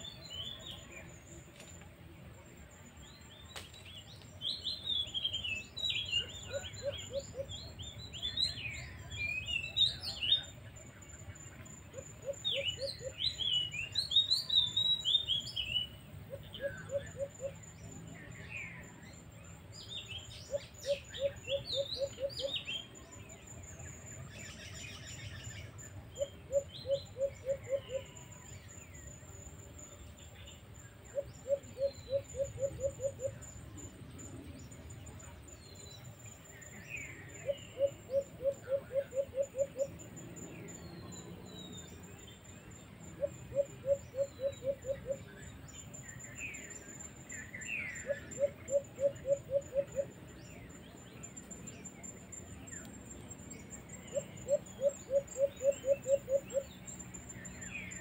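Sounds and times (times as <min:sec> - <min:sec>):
birds chirping and whistling: 0:12.0 - 0:17.8, 0:20.1 - 0:23.0, 0:31.1 - 0:34.4, 0:36.6 - 0:58.0.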